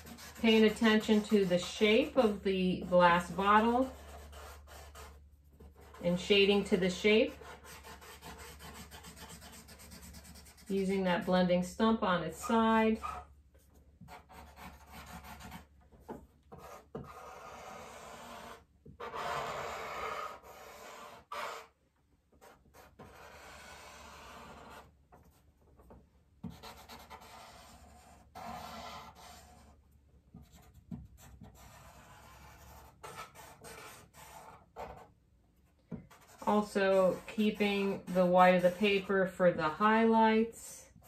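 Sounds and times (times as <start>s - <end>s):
charcoal rubbing on paper: 0.0s - 11.4s, 14.0s - 15.7s, 16.5s - 21.7s, 22.4s - 25.5s, 26.4s - 29.8s, 30.4s - 35.1s, 36.1s - 39.1s.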